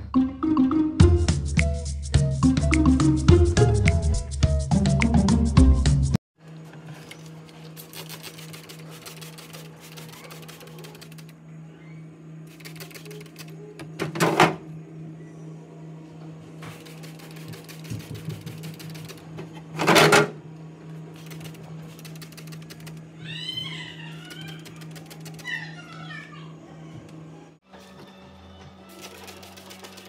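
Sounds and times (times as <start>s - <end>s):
pump spray bottle spraying: 7.6s - 11.3s, 12.5s - 13.6s, 16.6s - 19.3s, 21.2s - 23.0s, 24.3s - 25.5s, 28.9s - 30.0s.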